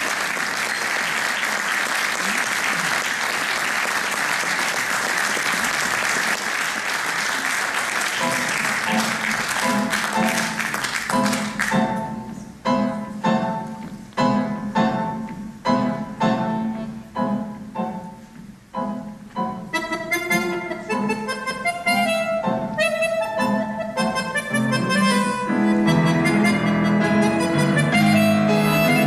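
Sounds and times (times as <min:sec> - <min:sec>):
audience applause: 0:00.0 - 0:11.8
accordion and piano chords: 0:08.2 - 0:29.0.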